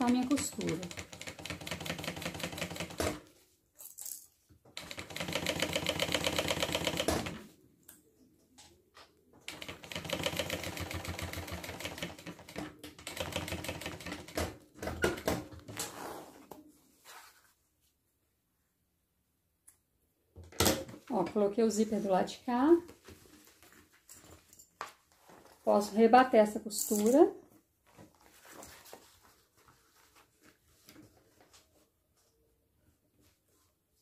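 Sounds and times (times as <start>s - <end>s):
sewing machine stitching: 9.5s - 15.3s.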